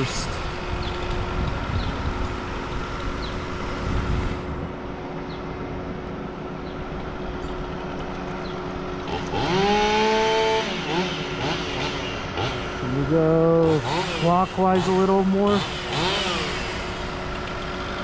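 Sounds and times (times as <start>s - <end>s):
machinery running: 0.0s - 18.0s
chainsaw revving: 8.0s - 18.0s.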